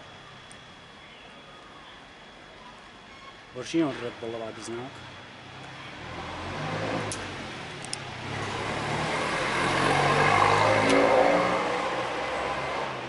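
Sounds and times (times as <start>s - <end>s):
vehicle passing with road noise: 3.8s - 13.0s
sharp clicks: 7.1s - 8.1s.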